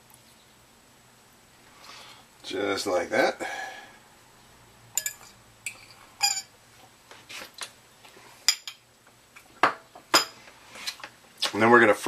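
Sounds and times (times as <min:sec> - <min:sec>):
fork clinking on ceramic bowl: 0:05.0 - 0:06.5.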